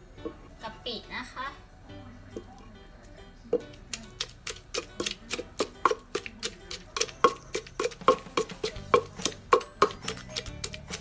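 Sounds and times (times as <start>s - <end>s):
wooden pestle pounding in mortar: 3.6s - 11.0s.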